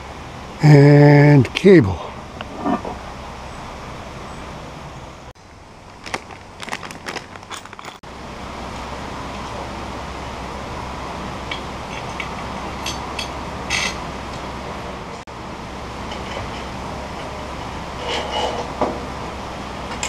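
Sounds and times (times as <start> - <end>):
rushing background noise: 0.0 - 20.0
metal clatter: 6.1 - 8.0, 11.5 - 14.0.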